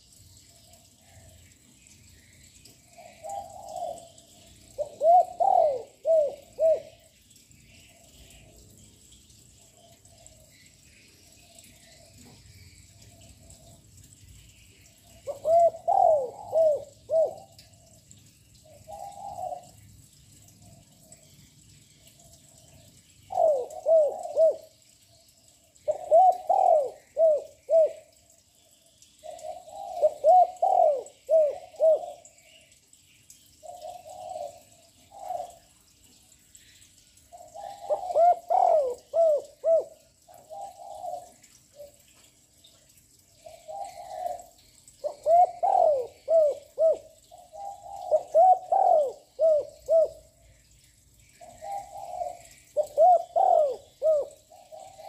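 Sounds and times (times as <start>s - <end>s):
dove cooing loudly: 4.7s - 7.0s, 15.2s - 17.6s, 23.3s - 24.7s, 25.8s - 28.1s, 29.4s - 32.2s, 37.5s - 41.3s, 43.7s - 50.3s, 51.6s - 55.0s.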